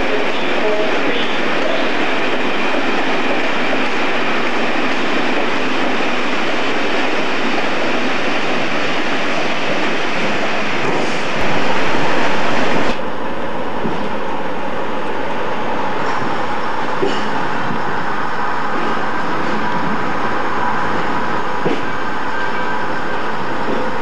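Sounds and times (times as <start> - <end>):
train rumble and hiss: 0.0 - 24.0
train running heard from cab: 0.0 - 24.0.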